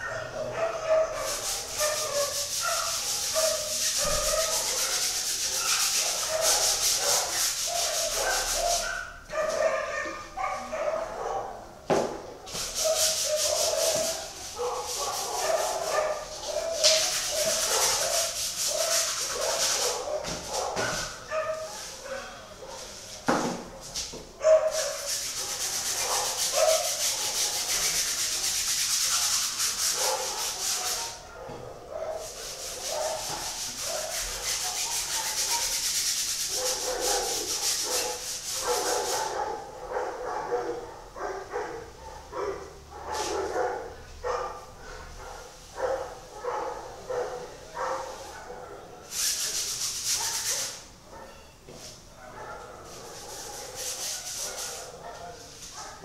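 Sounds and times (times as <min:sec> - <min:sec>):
paintbrush scrubbing on canvas: 0:00.6 - 0:09.8, 0:12.5 - 0:22.1, 0:22.7 - 0:31.2, 0:32.1 - 0:39.6, 0:43.1 - 0:43.5, 0:49.1 - 0:50.9, 0:52.8 - 0:56.0.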